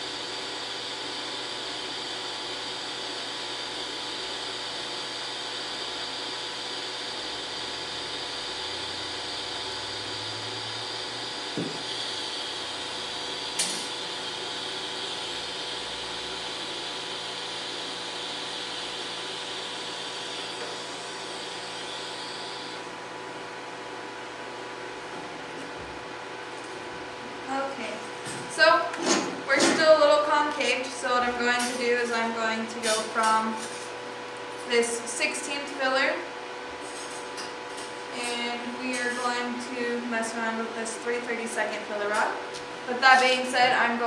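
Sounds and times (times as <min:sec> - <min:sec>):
low electrical hum: 0:18.8 - 0:44.0
welding arc hissing: 0:42.2 - 0:43.7.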